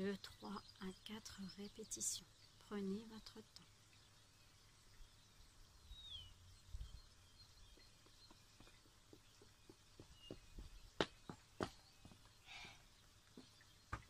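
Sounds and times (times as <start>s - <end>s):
bird chirp: 0.0s - 14.0s
wind rumble on microphone: 5.8s - 7.9s.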